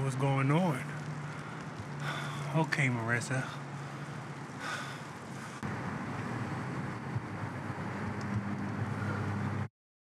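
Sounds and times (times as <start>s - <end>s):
steady low hum: 0.2s - 9.7s
wind on microphone: 5.7s - 9.7s.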